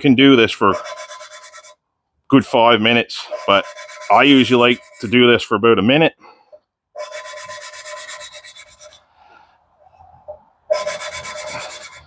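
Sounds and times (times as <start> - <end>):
gritty rasping of valve lapping: 0.7 - 1.8, 3.2 - 5.3, 7.0 - 9.0, 10.3 - 12.0.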